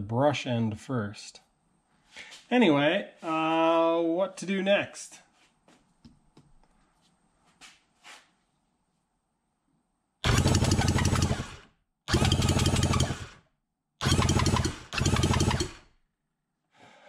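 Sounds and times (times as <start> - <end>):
starter motor cranking engine: 10.2 - 13.4, 14.0 - 15.9.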